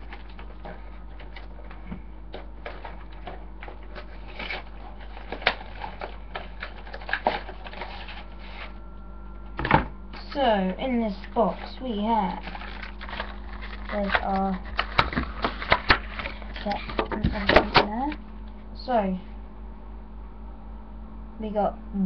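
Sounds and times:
cardboard box rustling: 2.6s - 8.8s, 11.1s - 17.7s.

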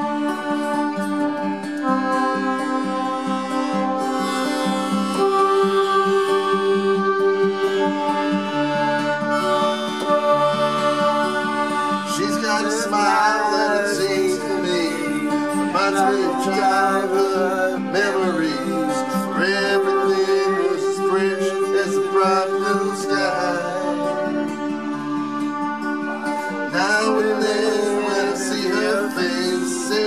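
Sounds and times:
acoustic guitar: 0.0s - 30.0s
keyboard chords: 0.0s - 30.0s
man singing: 12.0s - 24.5s, 26.7s - 30.0s.

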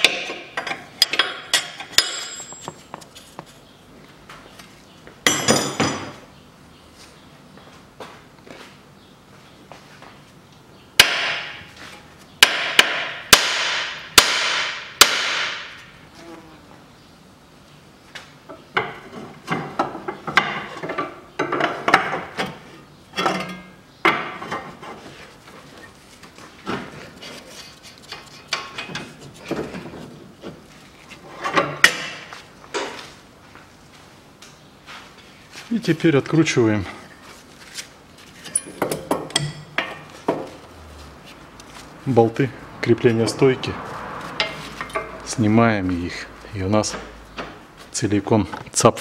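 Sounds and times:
tools clinking and rattling: 0.0s - 3.2s, 38.4s - 40.1s, 44.3s - 45.3s
hammer striking metal: 11.0s - 11.6s, 12.4s - 15.8s.

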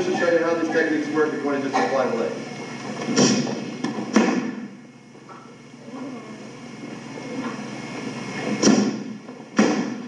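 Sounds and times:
low steady hum: 0.0s - 10.0s
kick smacking a person: 3.1s - 4.7s, 9.6s - 10.0s.

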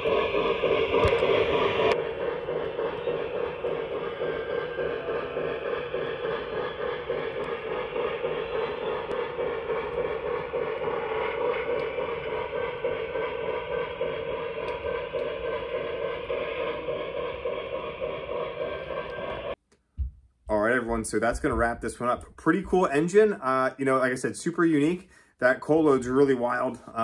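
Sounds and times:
model train wheels rumbling: 0.0s - 19.6s.

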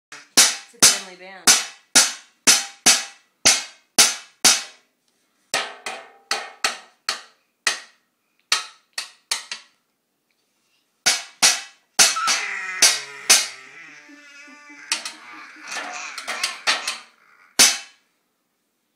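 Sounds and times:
children beating bowls and plates: 11.1s - 17.9s.

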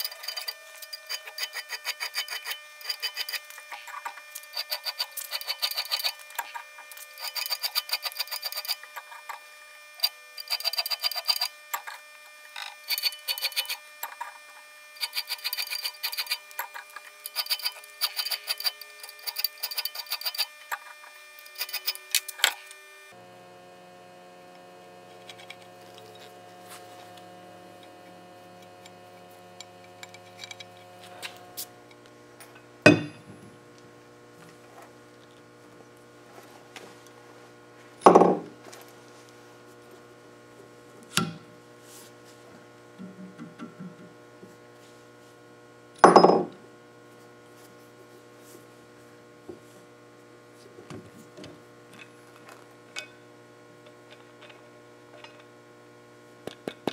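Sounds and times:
steel clamp knocking on workbench: 38.1s - 38.5s, 46.0s - 46.5s.

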